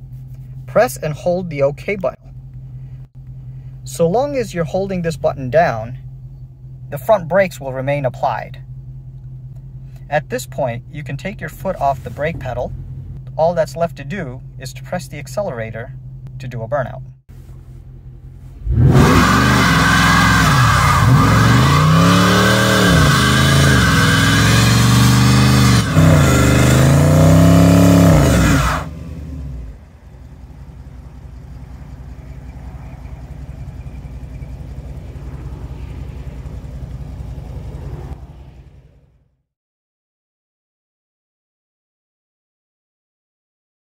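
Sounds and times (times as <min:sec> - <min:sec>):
car engine revving: 0:18.1 - 0:39.3
tyres spinning on pavement: 0:29.7 - 0:38.2.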